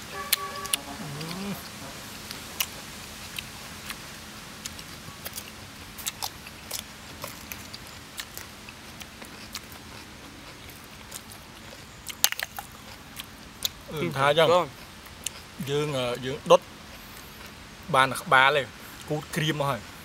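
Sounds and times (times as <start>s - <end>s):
people chewing and crunching: 0.0s - 19.4s
murmured voice: 0.1s - 2.1s.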